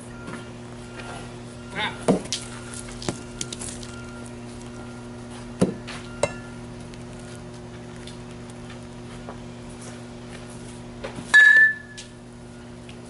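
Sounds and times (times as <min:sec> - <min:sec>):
steady low hum: 0:00.0 - 0:13.0
balls striking cage netting: 0:11.3 - 0:12.0
bat hitting balls: 0:11.4 - 0:12.0.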